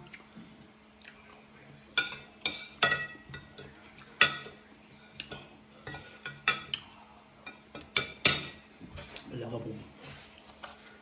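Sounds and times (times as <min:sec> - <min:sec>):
cutlery clinking on a plate: 0:01.9 - 0:09.2.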